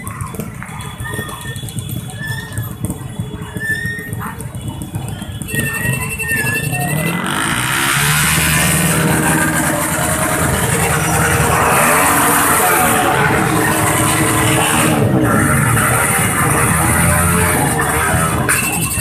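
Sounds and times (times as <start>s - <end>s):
motorcycle engines revving: 0.0s - 19.0s.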